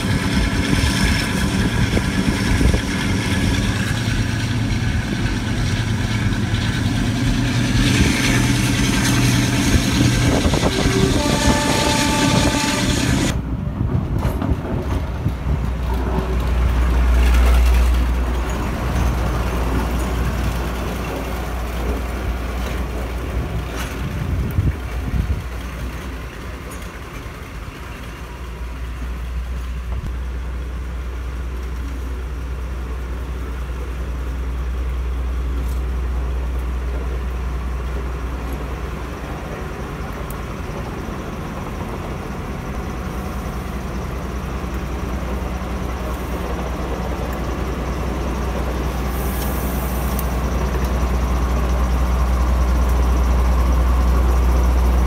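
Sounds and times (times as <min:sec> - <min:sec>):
diesel locomotive engine hum: 0:00.0 - 0:55.0
brief hiss: 0:49.1 - 0:50.3.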